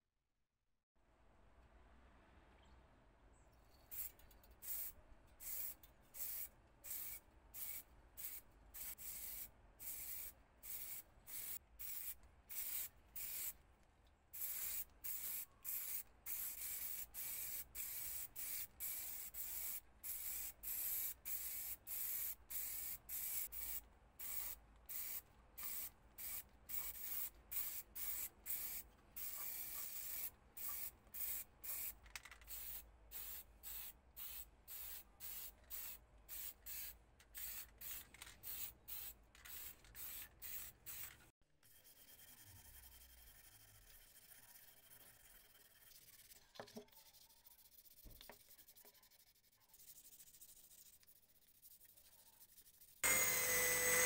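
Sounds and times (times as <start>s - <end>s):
spray can hissing: 3.9s - 13.6s, 14.4s - 41.1s.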